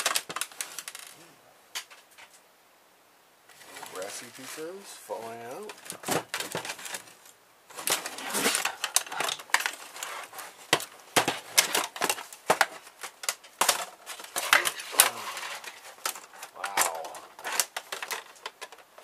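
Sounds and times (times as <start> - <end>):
plastic parts clicking and scraping: 0.0 - 1.2, 5.6 - 19.0.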